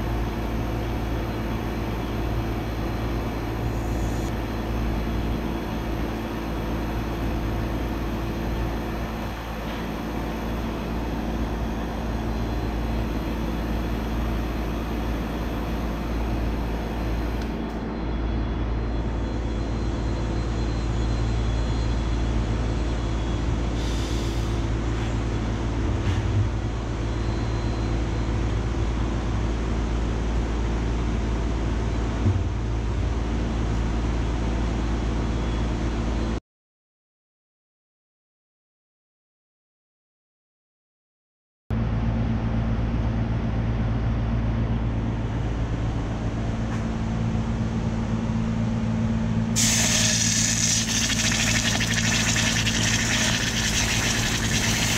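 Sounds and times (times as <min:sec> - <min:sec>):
short hiss: 0:49.6 - 0:51.0
vacuum pump humming: 0:49.6 - 0:54.9.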